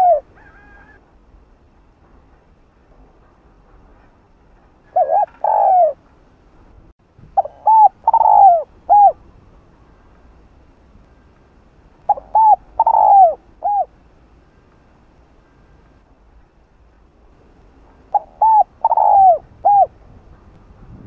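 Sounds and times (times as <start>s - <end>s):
dove cooing: 0.0s - 1.0s, 4.9s - 6.0s, 7.4s - 9.2s, 12.1s - 13.9s, 18.1s - 19.9s.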